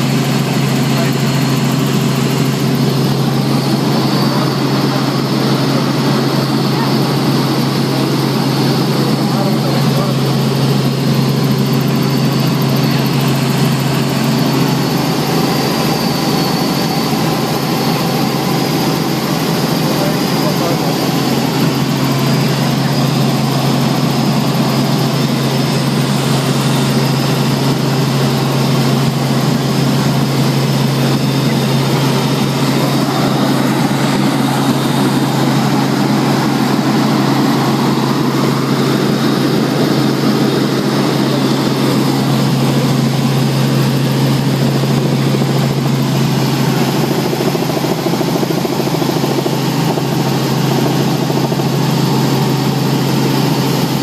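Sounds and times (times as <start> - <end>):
helicopter engine and rotor drone: 0.0 - 54.0.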